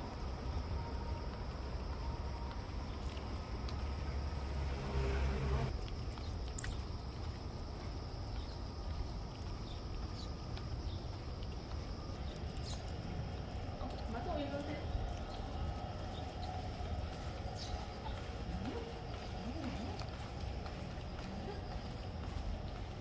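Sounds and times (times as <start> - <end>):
low rumble: 0.0 - 6.1
insect chirring: 0.1 - 16.5.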